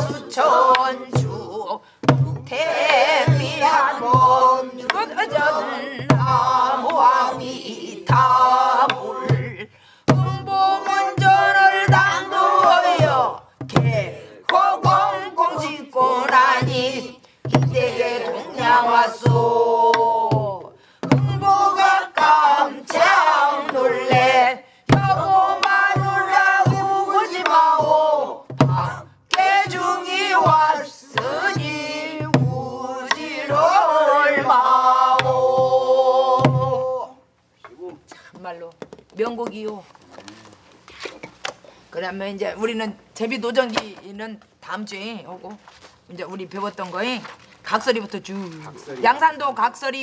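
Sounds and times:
voices singing in unison: 0.0s - 37.3s.

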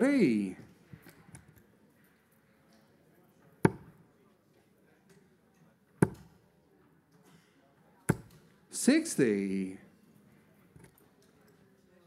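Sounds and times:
darts striking dartboard: 3.7s - 3.9s, 6.0s - 6.3s, 8.1s - 8.4s.

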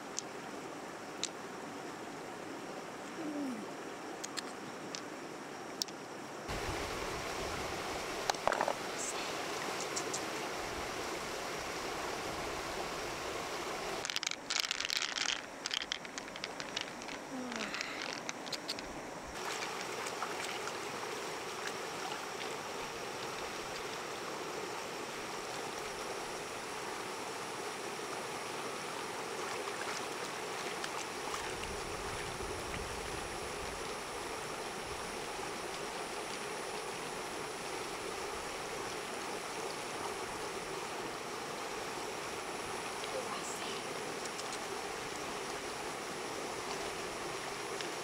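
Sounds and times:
faint clicks: 14.0s - 18.9s.

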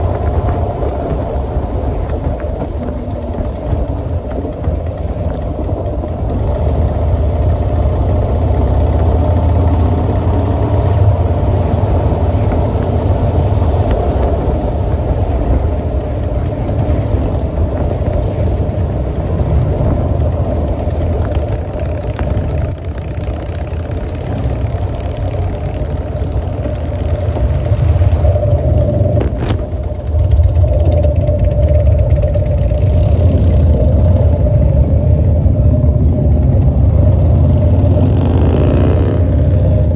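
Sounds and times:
motorcycle engine drone: 0.0s - 39.9s
wind and road noise: 0.0s - 39.9s.

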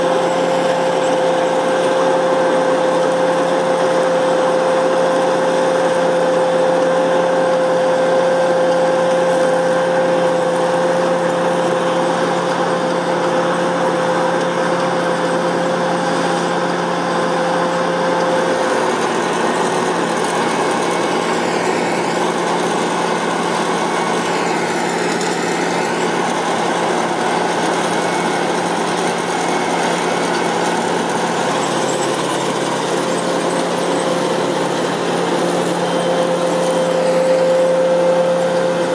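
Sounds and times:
combine harvester drone: 0.0s - 38.9s
machine whine: 0.0s - 38.9s.

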